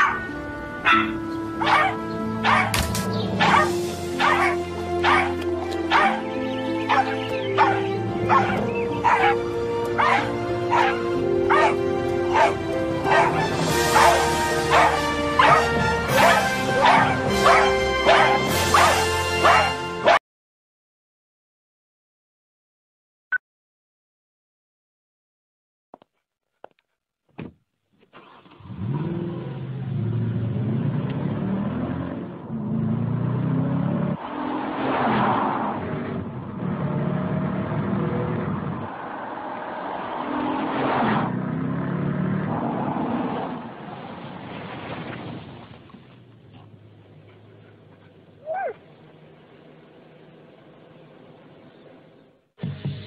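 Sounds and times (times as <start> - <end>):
dog barks: 0.0 - 6.3, 6.9 - 20.2
music with held notes: 0.2 - 20.0
car engine accelerating hard: 28.2 - 44.7.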